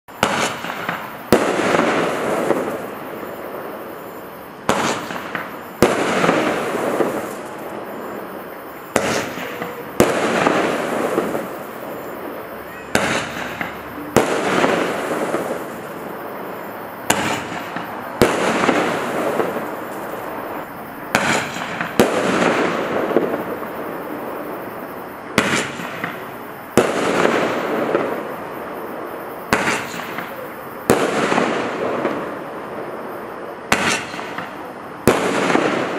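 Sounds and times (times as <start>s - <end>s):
crackling glitter fireworks: 0.1s - 35.9s
roman candle shots cracking: 0.2s - 2.9s, 4.6s - 7.8s, 8.9s - 16.1s, 17.0s - 20.4s, 21.1s - 23.5s, 29.5s - 32.2s, 33.7s - 35.9s.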